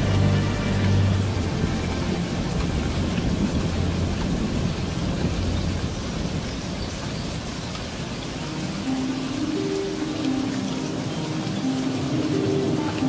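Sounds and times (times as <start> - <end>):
thunder rumbling: 0.0 - 9.0
soft sustained musical tones: 0.0 - 13.0
steady rain: 0.0 - 13.0.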